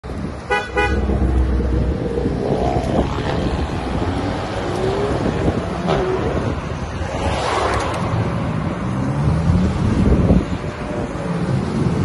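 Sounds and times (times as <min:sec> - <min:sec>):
wind on microphone: 0:00.0 - 0:12.0
cars driving past: 0:00.1 - 0:12.0
car horn toots: 0:00.5 - 0:01.1.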